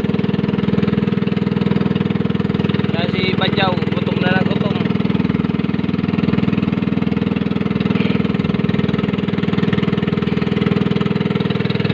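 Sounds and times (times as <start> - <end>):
small boat engine chugging: 0.0 - 11.9.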